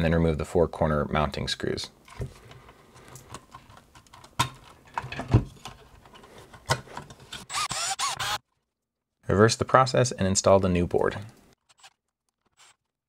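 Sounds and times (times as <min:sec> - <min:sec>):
cordless screwdriver whirring: 0:07.4 - 0:08.4.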